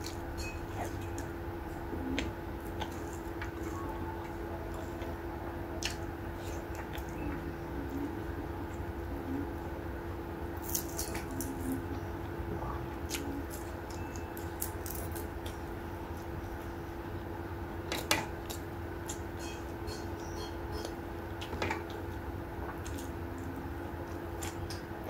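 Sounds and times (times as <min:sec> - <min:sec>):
low hum: 0:00.0 - 0:17.8
fingers picking through food: 0:10.6 - 0:12.0, 0:13.0 - 0:15.7.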